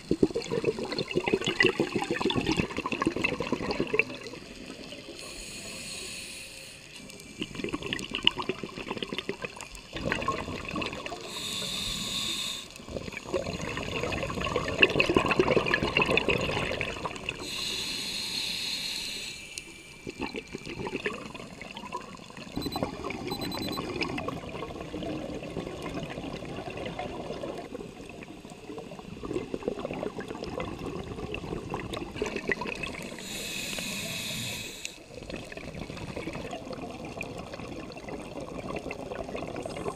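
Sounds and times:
gurgling exhaled bubbles underwater: 0.0s - 5.2s, 7.0s - 11.4s, 12.8s - 17.6s, 19.9s - 33.4s, 35.0s - 39.9s
regulator inhale hiss: 5.1s - 7.4s, 11.2s - 12.9s, 17.4s - 20.1s, 33.0s - 35.1s.

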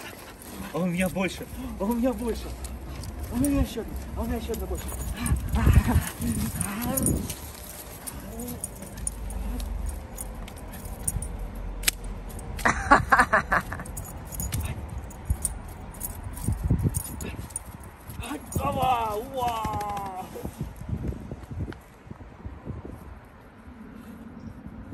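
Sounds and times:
collar and leash jingling: 0.0s - 19.8s.

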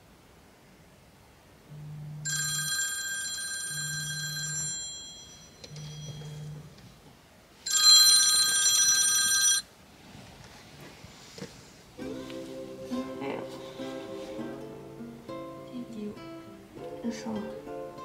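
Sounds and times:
phone buzzing: 1.7s - 6.8s, 7.7s - 9.7s
high electronic ringing tone: 2.0s - 6.8s, 7.7s - 9.7s.

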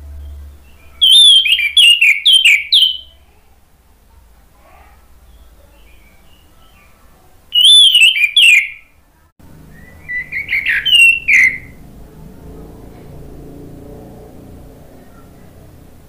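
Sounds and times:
thrush singing whistled notes: 0.1s - 3.2s, 7.5s - 8.9s, 9.6s - 11.8s
soft bird twittering: 0.1s - 3.4s, 5.2s - 8.9s, 9.7s - 11.8s.

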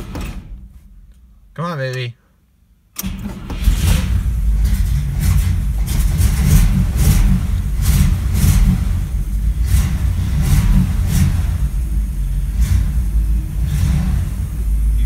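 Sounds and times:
car engine running unevenly: 3.0s - 15.0s.

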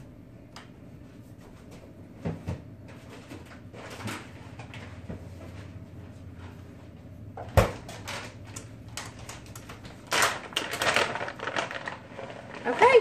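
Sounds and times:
plastic bag crinkling: 8.0s - 13.0s.

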